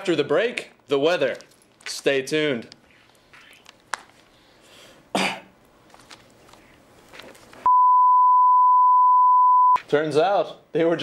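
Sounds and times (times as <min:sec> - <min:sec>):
person clearing throat: 0:05.1 - 0:05.5
steady electronic beep: 0:07.7 - 0:09.8.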